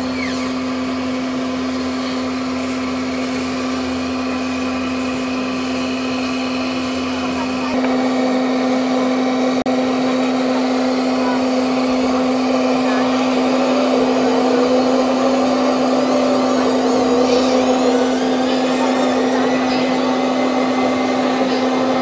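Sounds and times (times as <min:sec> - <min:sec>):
electric motor whine: 0:00.0 - 0:22.0
faint voices: 0:01.6 - 0:09.0, 0:09.8 - 0:22.0.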